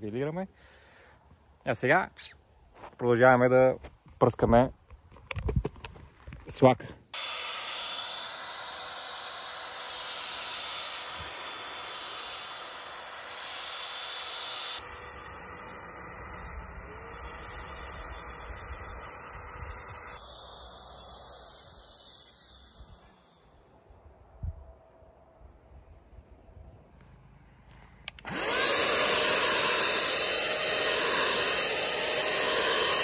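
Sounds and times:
paint sprayer hissing: 0:07.2 - 0:23.6, 0:28.2 - 0:33.0
faint motor tone: 0:07.2 - 0:23.9.

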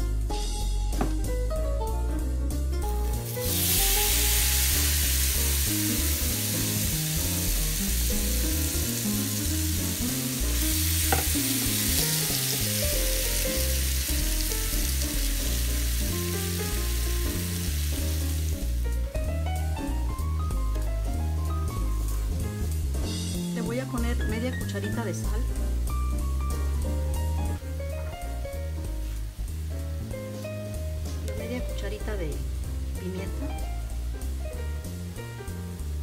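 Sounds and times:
food sizzling in a skillet: 0:02.8 - 0:19.0, 0:28.7 - 0:36.0.

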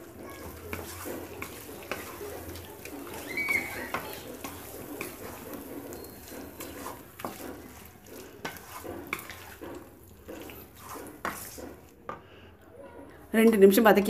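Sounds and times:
spatula scraping pickle in pan: 0:00.0 - 0:12.2.

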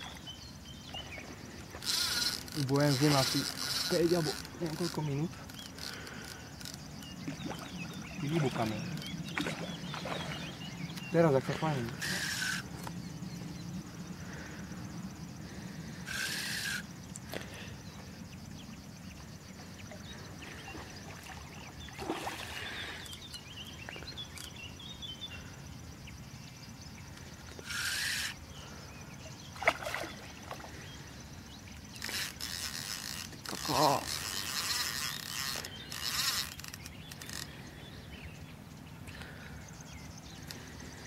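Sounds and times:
fishing reel noise: 0:01.6 - 0:13.2, 0:15.9 - 0:17.5, 0:27.1 - 0:28.8, 0:31.0 - 0:37.8
fish splashing in water: 0:20.8 - 0:23.0, 0:29.6 - 0:30.8.

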